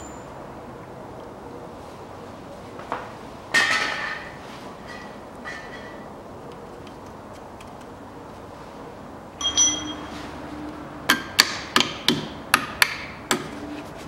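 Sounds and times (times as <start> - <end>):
ringing metallic clinks: 0.0 - 0.4, 9.4 - 10.2.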